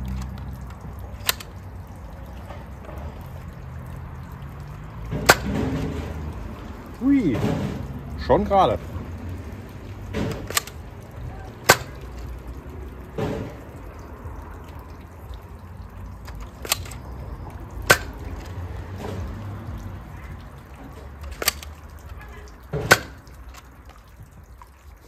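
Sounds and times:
toy blaster plastic clacks: 10.2s - 10.8s, 16.3s - 17.1s, 21.2s - 21.8s.

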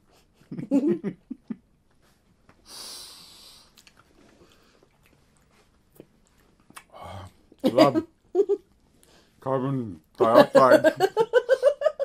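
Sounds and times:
breathy exhale: 2.6s - 3.8s.

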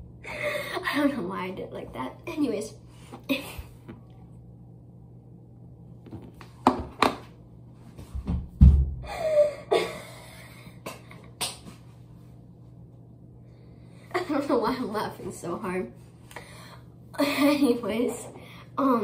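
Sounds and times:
girl laughing: 9.1s - 11.4s.

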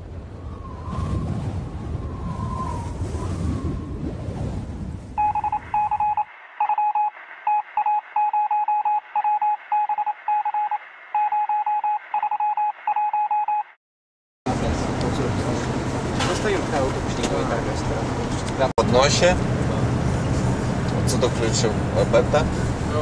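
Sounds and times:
low rumbling noise: 0.0s - 6.6s, 14.5s - 23.0s
morse code beeping: 5.2s - 13.8s.

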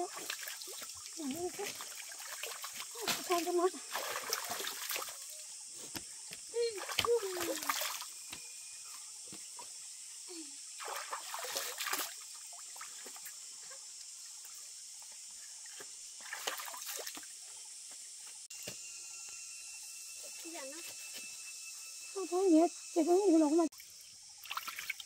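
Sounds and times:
stream trickling over rocks: 0.0s - 5.6s, 23.7s - 25.0s
water splashed onto face: 3.9s - 5.2s, 10.8s - 12.2s.

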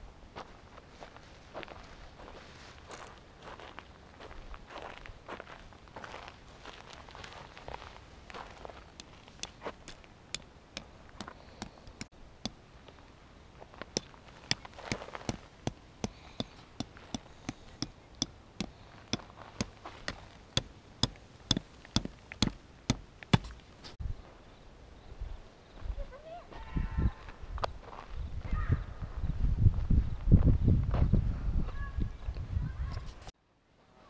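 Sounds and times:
hammering metal tent stakes: 8.9s - 12.6s, 14.0s - 24.0s.

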